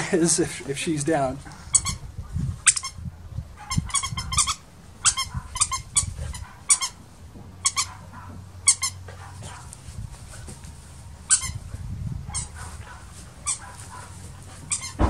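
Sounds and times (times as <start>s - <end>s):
dog toy squeaking: 14.7s - 15.0s.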